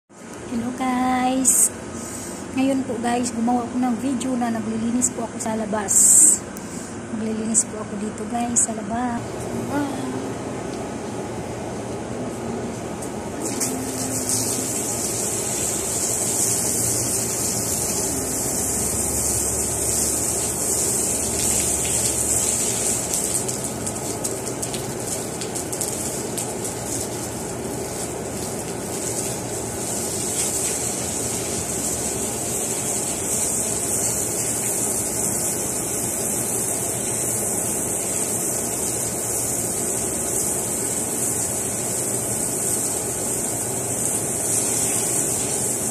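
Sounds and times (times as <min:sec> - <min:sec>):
low steady hum: 0:00.2 - 0:45.9
hose spraying water on tiles: 0:13.4 - 0:45.9.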